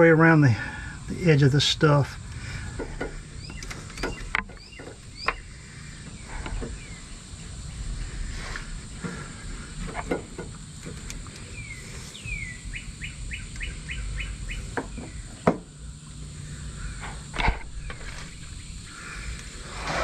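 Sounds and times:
bird calling: 0:00.5 - 0:10.2, 0:11.1 - 0:20.0
sharp clicks and knocks: 0:02.8 - 0:05.4, 0:09.8 - 0:11.5.

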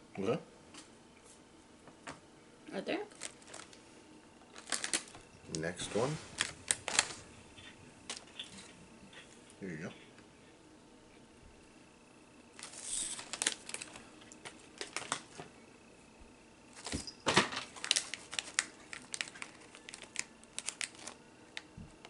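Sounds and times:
plastic packaging crinkling: 0:03.1 - 0:03.8, 0:04.5 - 0:09.2, 0:12.6 - 0:15.4, 0:16.7 - 0:21.7.

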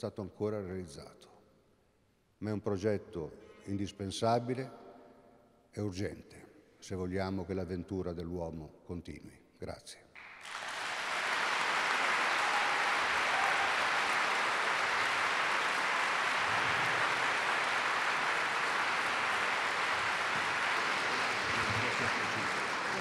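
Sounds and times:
large audience applauding: 0:10.2 - 0:23.0.

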